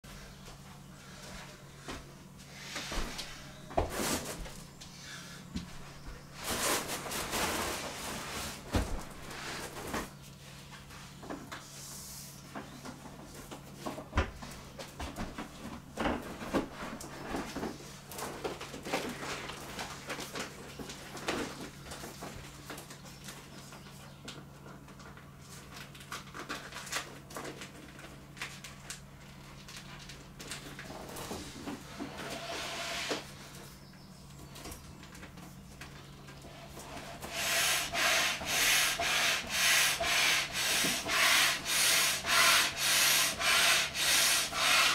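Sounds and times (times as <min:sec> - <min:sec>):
plastic crinkling and rustling: 0:15.4 - 0:31.9.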